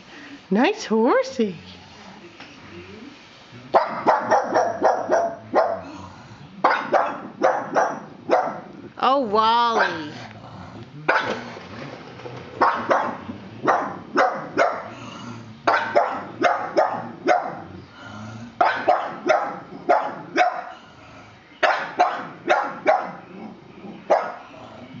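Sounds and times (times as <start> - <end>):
dog barking: 3.7 - 5.9, 6.6 - 8.7, 9.8 - 10.1, 11.1 - 11.4, 12.6 - 14.9, 15.7 - 17.7, 18.6 - 20.8, 21.6 - 23.3, 24.1 - 24.4.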